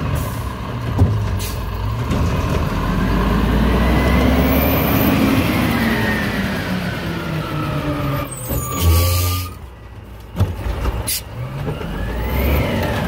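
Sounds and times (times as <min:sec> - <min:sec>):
garbage truck diesel engine: 0:00.0 - 0:13.0.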